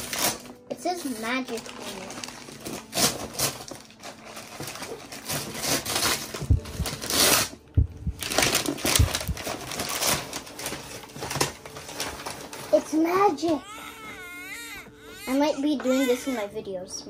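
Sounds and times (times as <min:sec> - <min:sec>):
wrapping paper tearing and crumpling: 0:00.0 - 0:06.4, 0:07.0 - 0:07.6, 0:08.2 - 0:15.3
dull thumps: 0:06.4 - 0:07.1, 0:07.7 - 0:09.5.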